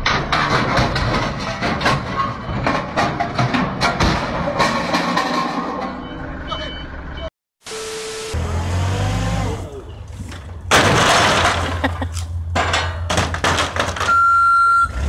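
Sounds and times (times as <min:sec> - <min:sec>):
plastic crates crashing down: 0:00.0 - 0:05.8, 0:10.3 - 0:14.3
steady high beep: 0:06.1 - 0:08.4.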